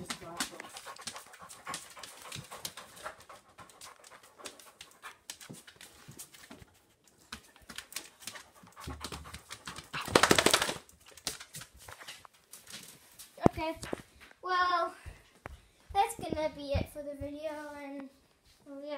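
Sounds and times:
dog panting: 0.0s - 10.2s.

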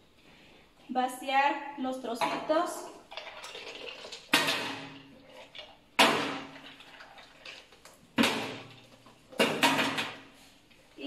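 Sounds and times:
ice clattering into a metal sink: 2.2s - 10.3s.

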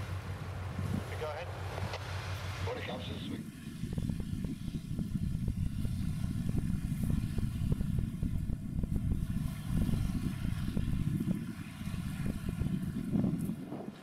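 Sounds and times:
tug engines rumbling: 0.0s - 14.0s.

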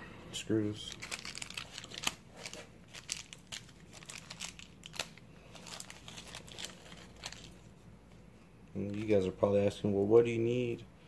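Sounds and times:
plastic packaging crinkling: 0.9s - 7.8s.

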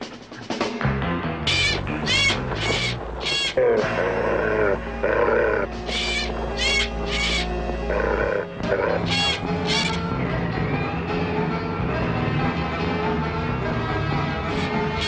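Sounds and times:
background music: 0.0s - 15.0s
low snarl-like animal cry: 1.5s - 10.0s
high harsh animal calls: 1.5s - 10.1s, 14.5s - 15.0s.

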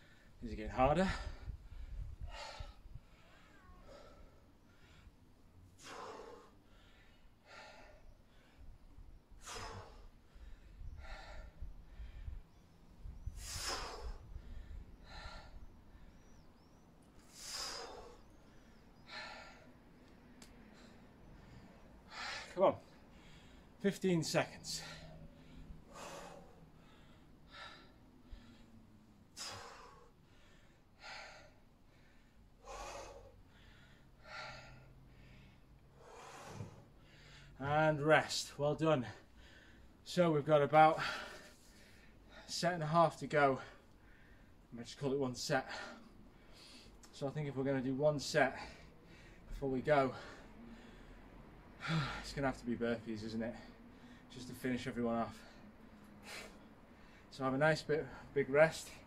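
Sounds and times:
man breathing hard: 1.0s - 23.8s, 24.6s - 37.6s, 39.0s - 40.0s, 43.6s - 44.7s, 45.6s - 47.1s, 48.5s - 52.4s, 53.5s - 54.3s, 55.3s - 57.4s.

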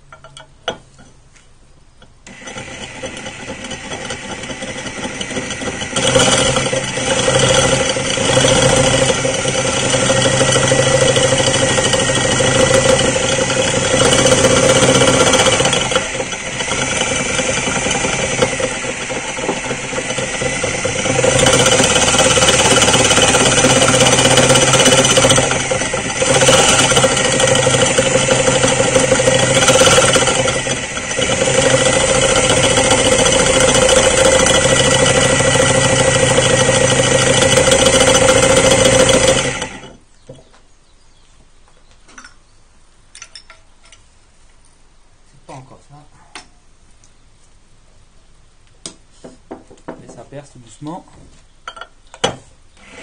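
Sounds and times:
drill bit grinding ceramic: 2.0s - 40.1s
electric drill motor: 2.3s - 40.0s, 52.8s - 53.0s.

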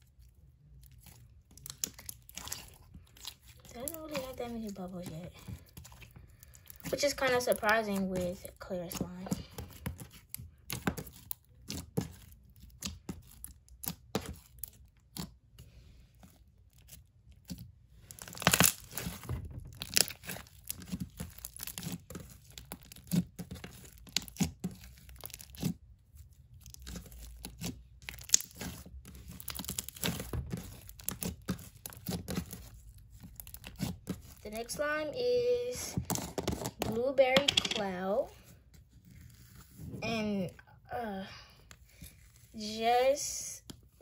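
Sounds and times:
slime crackling and popping: 0.0s - 15.6s, 16.2s - 34.9s.

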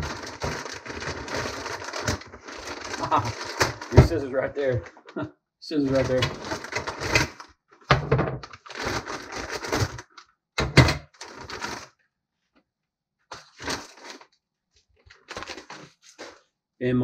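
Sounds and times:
plastic bag crinkling: 0.0s - 5.1s, 5.8s - 7.5s, 8.4s - 10.2s, 11.1s - 11.9s, 13.3s - 16.4s.

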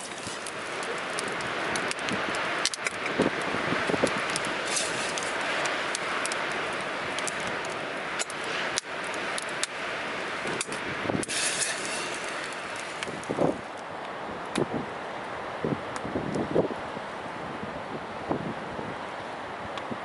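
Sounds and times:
storm wind rushing: 0.0s - 13.7s
campfire crackling and popping: 0.0s - 16.6s.

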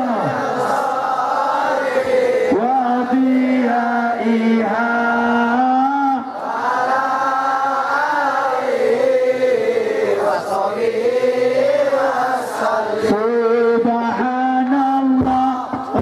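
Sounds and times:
slow melodic religious chanting: 0.0s - 16.0s.

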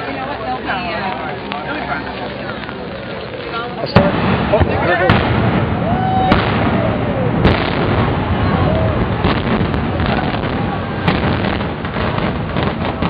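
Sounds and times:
continuous rumble: 0.0s - 13.0s
explosive charges banging: 3.9s - 13.0s.

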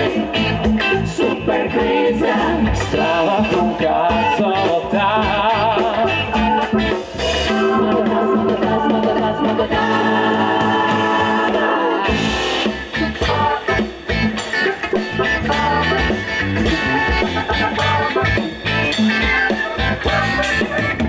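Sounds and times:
sustained music chords: 12.0s - 21.0s
steady music beat: 12.1s - 21.0s.

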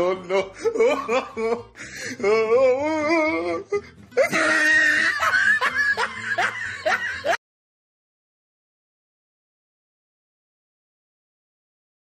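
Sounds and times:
people laughing and shouting: 0.0s - 1.7s, 4.2s - 7.4s.

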